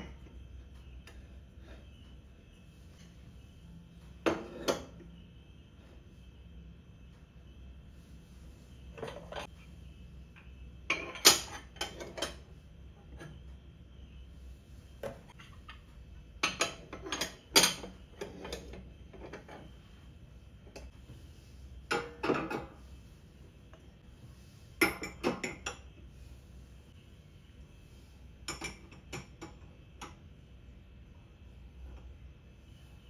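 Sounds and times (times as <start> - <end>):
glass dishes clinking in a rack: 10.9 - 12.5, 24.8 - 25.9.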